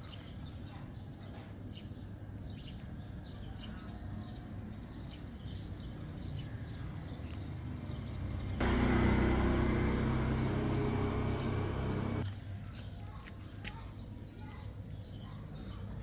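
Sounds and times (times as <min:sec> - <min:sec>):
low traffic rumble: 0:07.4 - 0:12.2
loud steady engine noise: 0:08.2 - 0:12.2.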